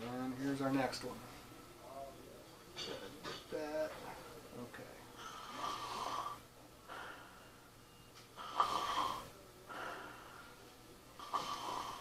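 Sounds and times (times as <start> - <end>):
man snoring: 5.4 - 6.4, 8.4 - 9.4, 11.2 - 12.0.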